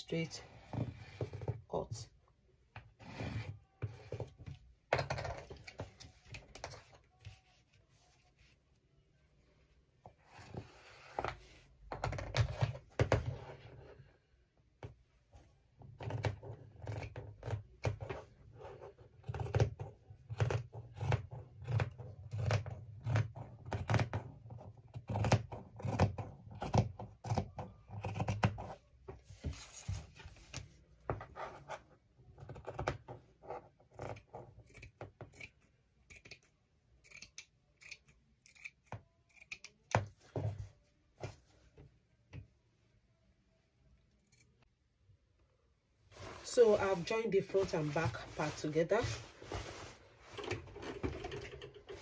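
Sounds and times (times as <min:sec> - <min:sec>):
scissors snipping fabric: 0:19.0 - 0:28.6, 0:33.8 - 0:40.2.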